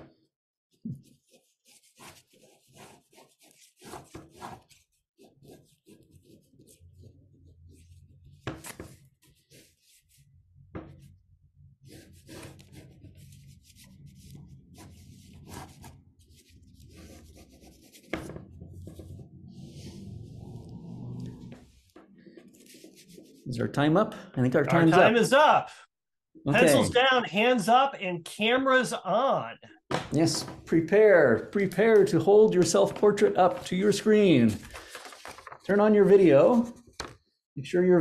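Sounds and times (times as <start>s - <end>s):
pencil scratching on paper: 0.9s - 11.2s, 11.8s - 23.5s.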